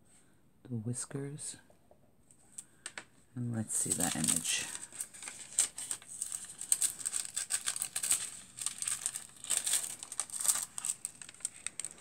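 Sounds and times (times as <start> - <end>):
foil sheet crinkling: 3.8 - 12.0.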